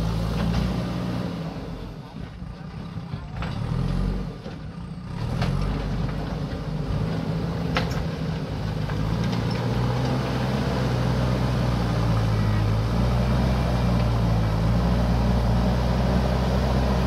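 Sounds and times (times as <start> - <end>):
diesel engine under load: 0.0 - 17.0.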